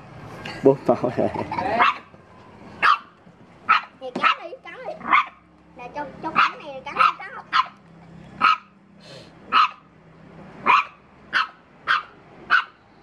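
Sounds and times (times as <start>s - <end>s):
puppy barking: 1.7s - 2.1s, 2.8s - 5.4s, 6.3s - 7.8s, 8.4s - 8.8s, 9.5s - 9.9s, 10.6s - 12.8s.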